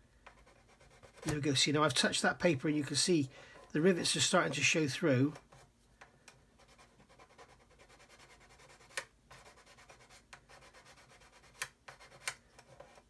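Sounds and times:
sanding stick scratching plastic: 0.2s - 1.5s, 6.6s - 13.0s.

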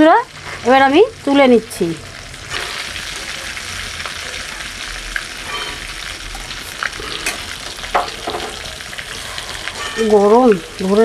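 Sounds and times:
fish sizzling in hot oil: 0.0s - 11.0s
metal utensil clinking in pan: 5.4s - 5.9s, 9.6s - 10.6s.

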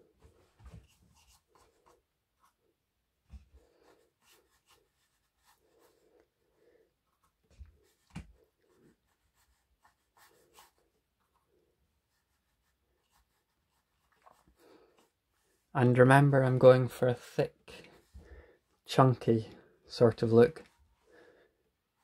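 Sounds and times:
paintbrush scratching on board: 3.6s - 6.1s, 8.7s - 15.1s.

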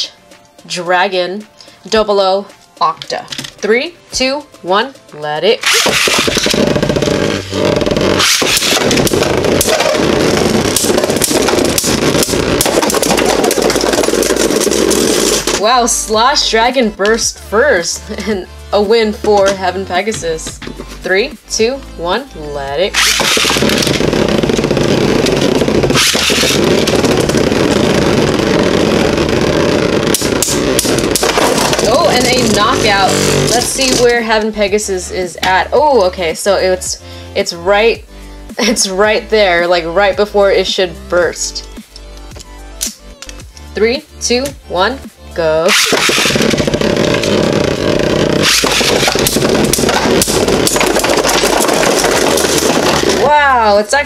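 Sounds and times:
spinning tops whirring and scraping: 5.6s - 21.6s, 22.9s - 34.3s, 45.6s - 53.6s.

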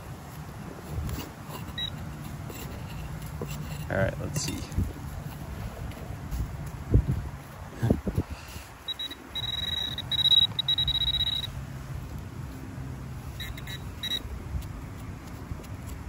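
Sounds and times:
high continuous detector tone: 1.5s - 3.1s, 8.8s - 11.6s, 13.3s - 14.3s
quick detector beeps: 1.6s - 2.0s, 8.8s - 11.6s, 13.3s - 14.2s.

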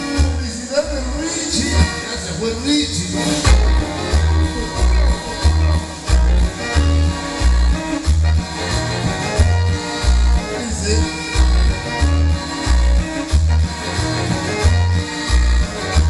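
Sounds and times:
loud latin dance music: 0.0s - 16.0s
heavy bass note: 3.4s - 8.4s.

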